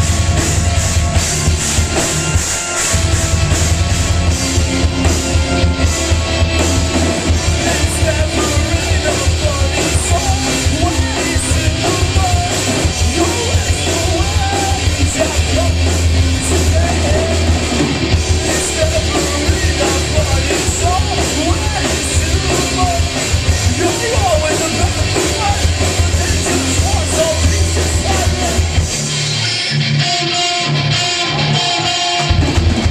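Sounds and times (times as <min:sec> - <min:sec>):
bass guitar: 0:00.0 - 0:32.9
drums: 0:00.0 - 0:32.9
electric guitars: 0:00.0 - 0:32.9
person singing: 0:07.3 - 0:17.6, 0:18.3 - 0:28.8.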